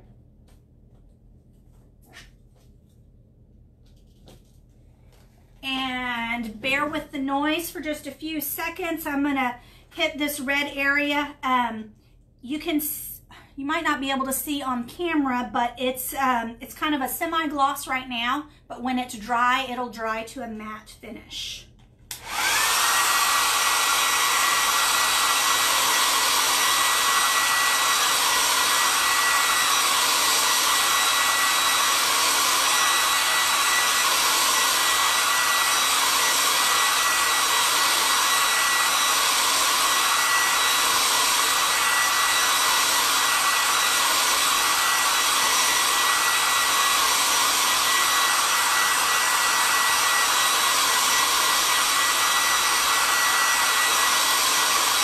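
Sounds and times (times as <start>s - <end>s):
hair dryer running: 22.1s - 55.0s.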